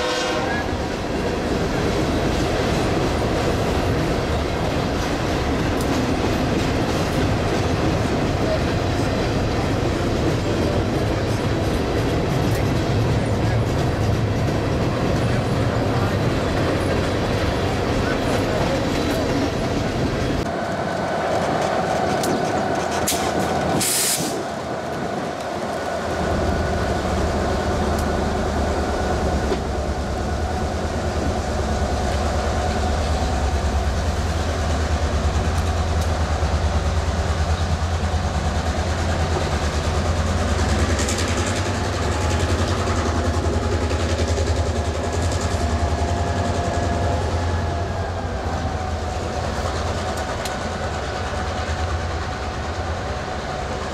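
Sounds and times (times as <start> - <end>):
diesel locomotive rumble: 0.0 - 53.9
short hiss: 23.8 - 24.4.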